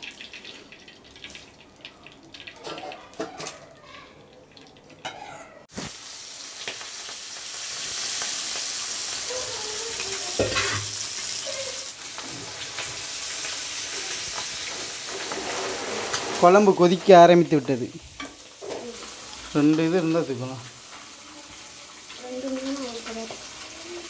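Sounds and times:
fish sizzling in hot oil: 5.7s - 24.0s.

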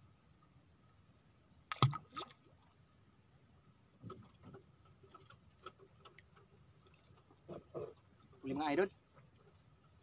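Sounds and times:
sharp wet knock: 1.7s - 2.0s
water lapping at hull: 1.7s - 10.0s.

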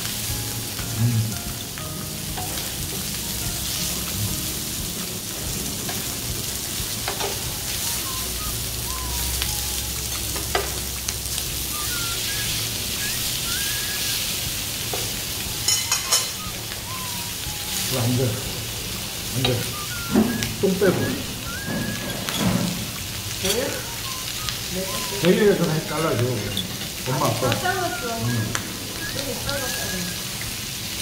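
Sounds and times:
meat sizzling on grill pan: 0.0s - 31.0s
tongs clicking against pan: 7.0s - 7.4s.

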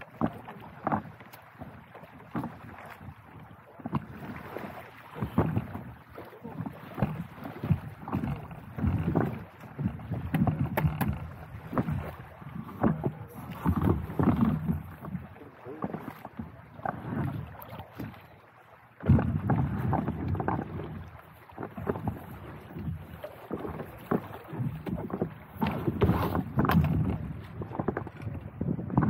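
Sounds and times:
small waves slapping a board: 0.0s - 29.0s.

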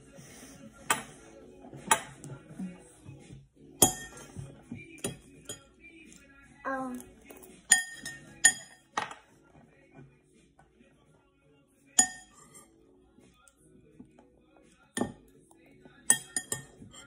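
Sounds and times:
metal spoon clinking on bowl: 3.8s - 4.3s, 4.9s - 5.7s, 7.2s - 9.2s, 12.0s - 12.7s, 15.0s - 15.3s, 15.9s - 17.0s.

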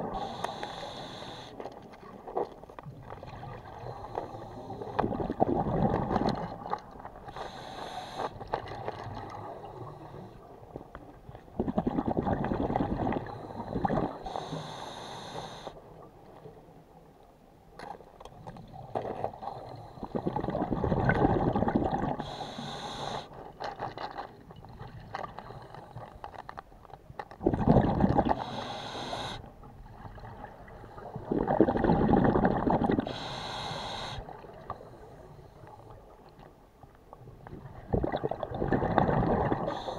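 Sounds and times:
diver breathing through regulator: 0.0s - 1.6s, 7.3s - 8.5s, 13.1s - 15.8s, 22.2s - 23.4s, 28.2s - 29.5s, 33.0s - 35.8s, 39.6s - 39.9s.

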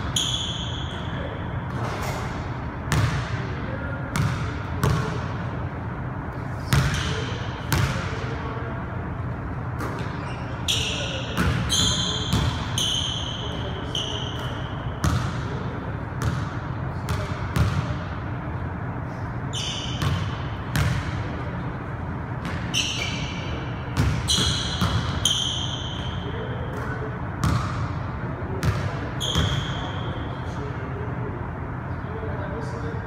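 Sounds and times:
sneakers squeaking on floor: 0.0s - 3.4s, 9.8s - 15.5s, 19.4s - 21.2s, 22.4s - 27.9s, 28.6s - 30.6s.

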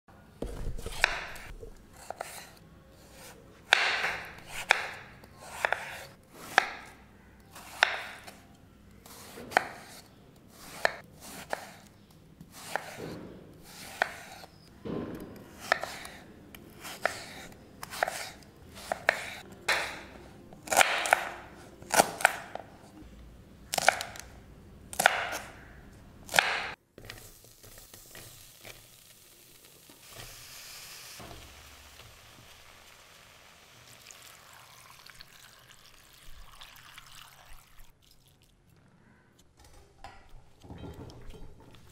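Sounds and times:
knife chopping on wooden board: 0.4s - 2.5s, 3.2s - 6.9s, 7.7s - 8.4s, 9.3s - 10.0s, 12.6s - 16.2s, 16.8s - 22.6s, 26.3s - 26.8s.

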